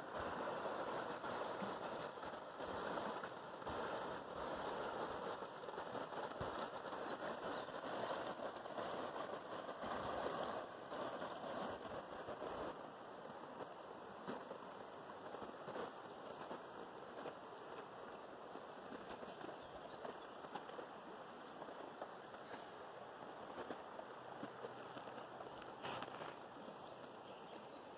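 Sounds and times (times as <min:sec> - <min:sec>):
river water rushing: 0:00.0 - 0:18.6.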